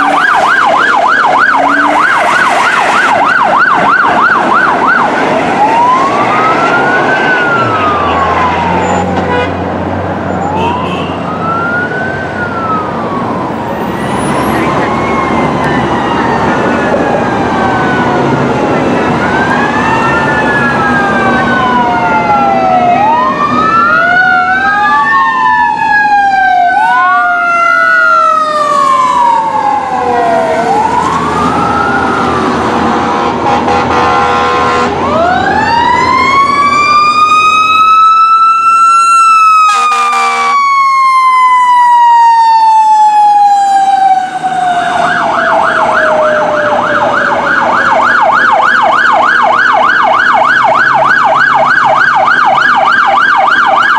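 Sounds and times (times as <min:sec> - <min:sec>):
horn blast: 0:00.0 - 0:00.6, 0:01.5 - 0:03.2, 0:07.7 - 0:09.8, 0:32.8 - 0:35.1, 0:39.7 - 0:40.6
electronic yelp siren: 0:00.0 - 0:09.5, 0:10.1 - 0:53.9
wailing sirens: 0:00.0 - 0:53.9.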